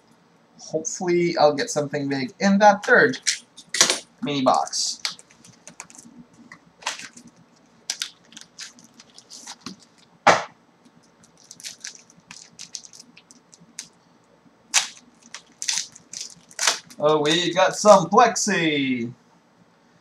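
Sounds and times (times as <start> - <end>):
foil wrapper crinkling and tearing: 4.9 - 6.2, 6.8 - 10.2, 10.9 - 14.0, 14.7 - 17.5.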